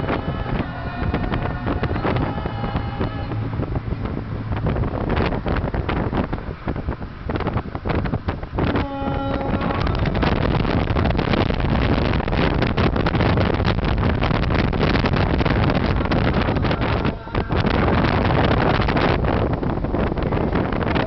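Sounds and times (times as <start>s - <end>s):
short steady tone: 0.0s - 3.6s
wind buffeting microphone: 0.0s - 21.0s.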